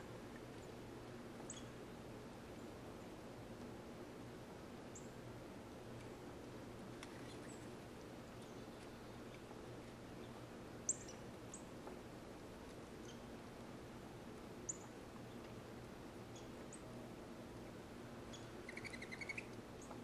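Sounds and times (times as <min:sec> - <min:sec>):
low steady hum: 0:00.0 - 0:20.0
bird chip calls: 0:18.3 - 0:20.0.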